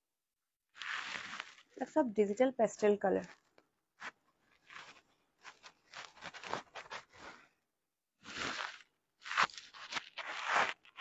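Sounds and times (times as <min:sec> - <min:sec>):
cloth rustling and swishing: 0:04.0 - 0:07.5.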